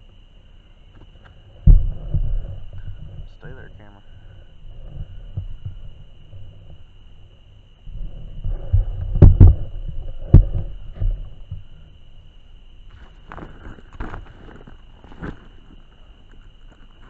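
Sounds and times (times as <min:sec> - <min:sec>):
steady high whine: 0:00.0 - 0:17.0
camera bumping heavy thumps: 0:01.0 - 0:03.4, 0:04.6 - 0:06.9, 0:07.9 - 0:11.7.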